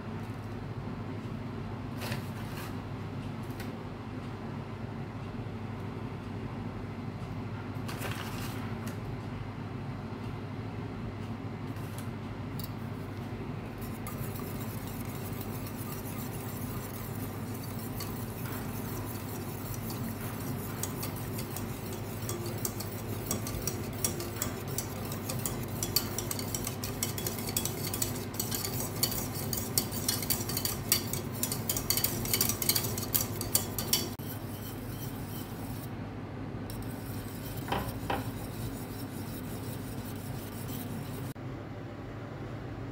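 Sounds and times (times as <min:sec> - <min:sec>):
steady low hum: 0:08.7 - 0:42.9
whisk clattering in a metal pan: 0:13.8 - 0:35.8, 0:36.7 - 0:41.4.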